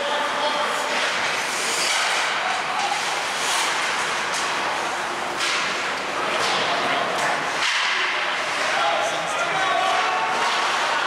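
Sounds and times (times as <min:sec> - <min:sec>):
skate blades scraping: 0:00.5 - 0:11.0
skates hissing on ice: 0:01.3 - 0:04.2.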